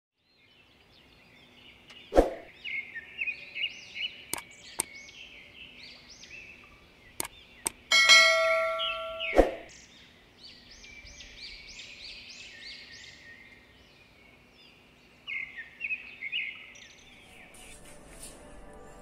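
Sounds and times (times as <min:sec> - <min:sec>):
birds chirping: 0:00.3 - 0:18.1
notification bell ding: 0:07.9 - 0:09.4.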